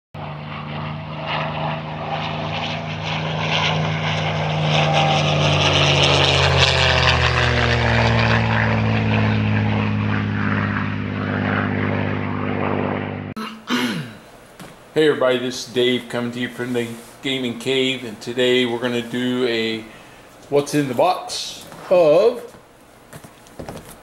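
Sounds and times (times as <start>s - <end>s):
propeller aircraft flying past: 0.2s - 13.4s.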